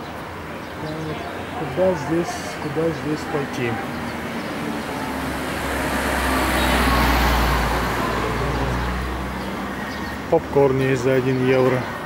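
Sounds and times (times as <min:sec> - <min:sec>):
motor vehicle driving past: 0:03.9 - 0:10.3.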